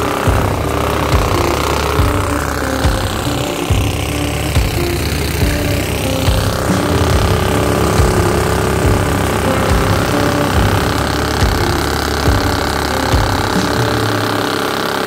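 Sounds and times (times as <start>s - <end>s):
boat motor running: 0.0s - 15.0s.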